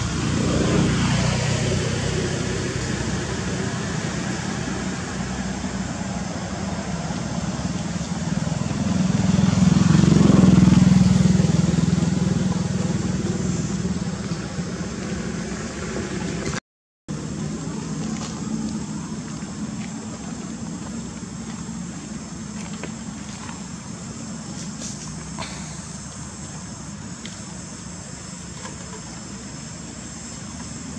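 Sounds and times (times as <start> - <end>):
passing vehicle engine drone: 0.0 - 30.9.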